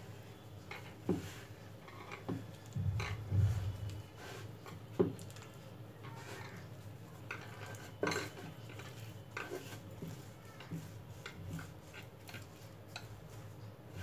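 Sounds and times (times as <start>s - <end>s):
hands rolling dough on a board: 0.6s - 14.0s.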